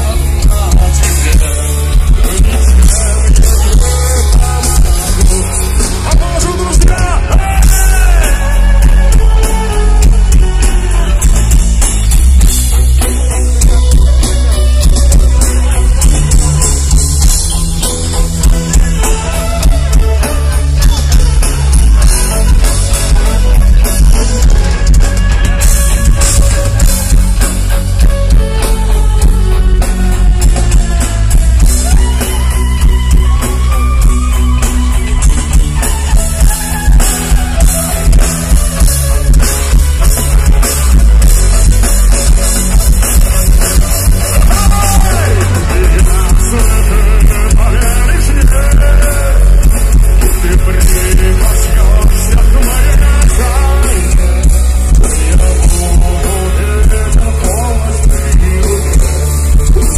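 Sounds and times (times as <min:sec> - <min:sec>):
live rock band playing: 0:00.0 - 0:59.9
violin: 0:00.0 - 0:59.9.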